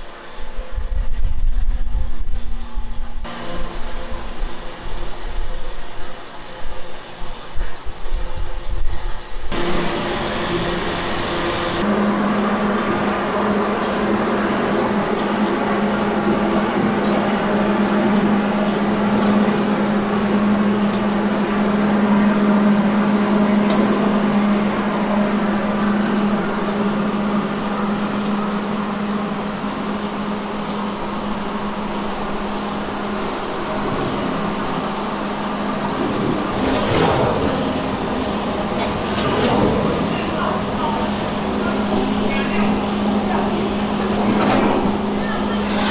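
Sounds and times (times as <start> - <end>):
machinery hum: 0.0 - 45.9.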